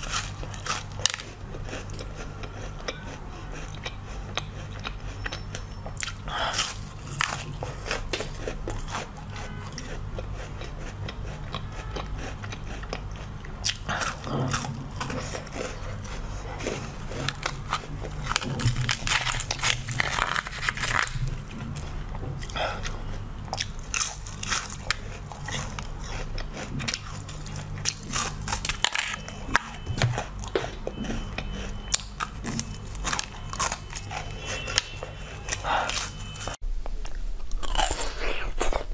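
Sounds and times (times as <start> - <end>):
steady low hum: 0.0 - 38.9
crunching bites of frozen leaves: 17.1 - 21.3, 23.6 - 38.9.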